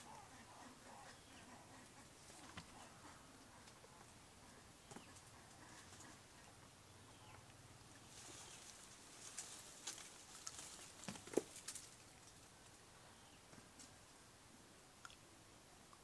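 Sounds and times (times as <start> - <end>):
faint clicks and crackles: 8.3 - 12.8.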